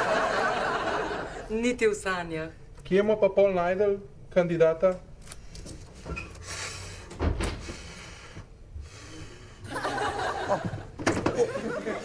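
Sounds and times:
laughter: 0.0s - 1.5s, 9.7s - 12.0s.

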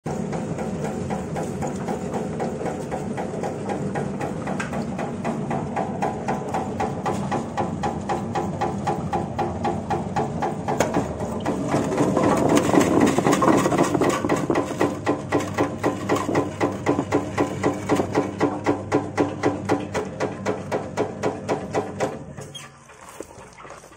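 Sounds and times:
peeling machine clattering: 0.1s - 22.3s.

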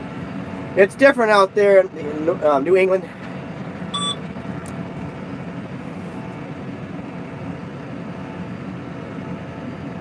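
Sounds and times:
tractor engine running: 2.1s - 7.1s
short electronic beep: 4.0s - 4.2s.

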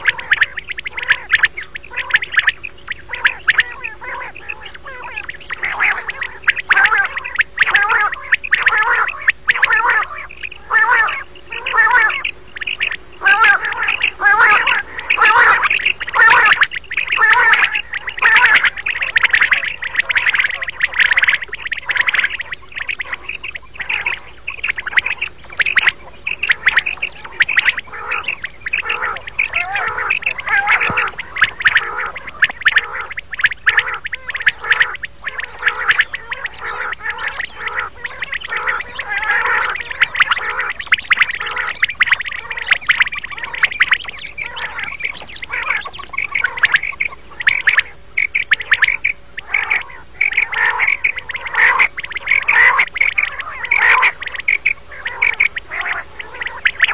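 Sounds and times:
quail calling: 0.0s - 56.9s.

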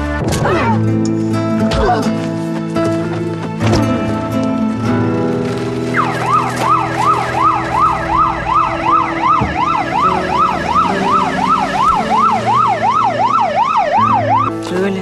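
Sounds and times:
police siren yelping: 5.9s - 14.6s.

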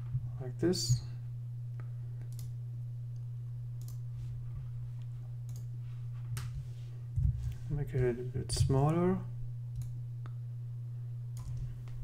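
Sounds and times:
low electrical hum: 0.0s - 12.0s
computer mouse clicks: 3.8s - 4.0s, 5.5s - 5.7s, 9.7s - 10.0s, 11.4s - 12.0s.

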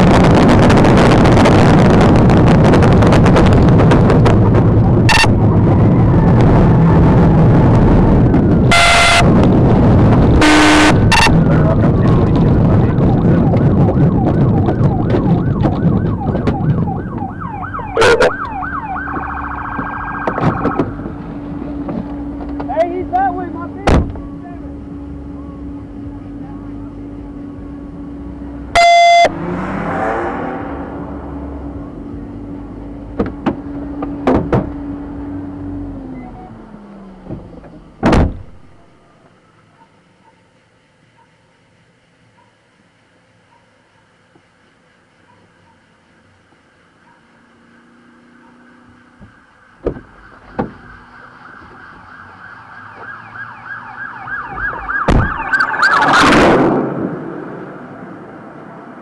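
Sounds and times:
steady hum: 0.0s - 29.5s
car engine and road noise: 0.0s - 59.0s
police siren yelp: 4.7s - 9.3s, 12.7s - 21.0s, 28.8s - 29.3s, 49.4s - 56.5s
fast warbling siren tone: 4.7s - 9.4s, 10.4s - 11.4s, 12.9s - 21.0s, 28.8s - 29.4s, 49.6s - 56.6s
car door thump: 23.8s - 24.3s, 33.2s - 34.8s, 37.2s - 38.6s, 49.2s - 50.8s, 55.0s - 55.4s.

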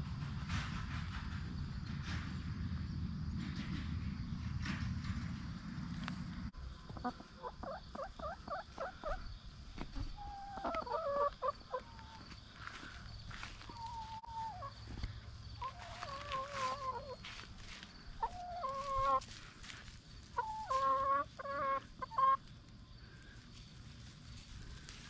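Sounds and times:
hens calling: 6.8s - 23.6s.

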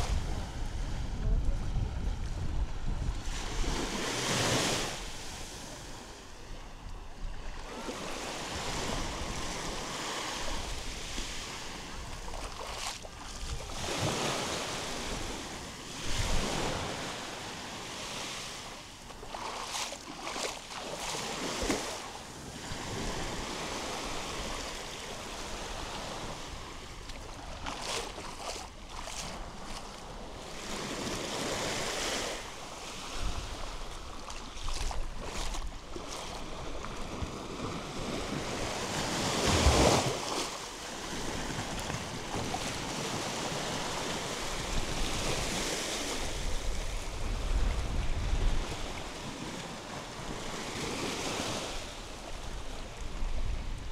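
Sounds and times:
wind buffeting microphone: 0.0s - 5.2s, 41.3s - 49.6s
sea waves breaking: 0.0s - 53.9s.

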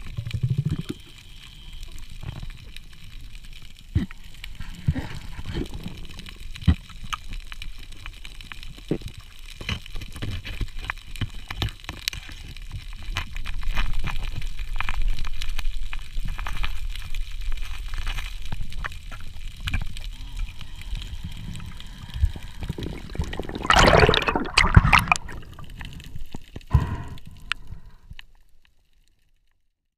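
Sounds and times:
underwater clicks and crackles: 0.0s - 29.6s
water movement rumble: 14.2s - 28.2s.

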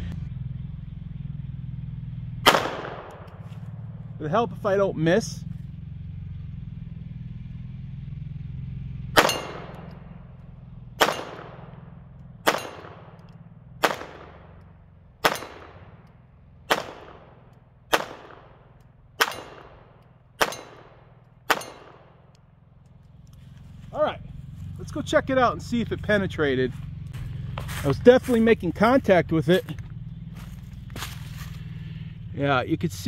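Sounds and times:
pistol shots with ringing tail: 2.4s - 3.6s, 9.1s - 10.4s, 11.0s - 22.4s.

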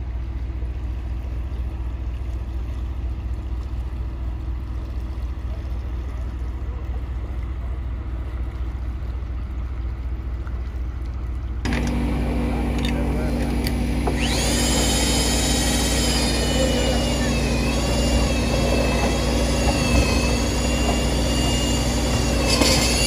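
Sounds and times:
close engine hum: 11.3s - 23.0s
construction machinery droning: 11.6s - 23.0s.

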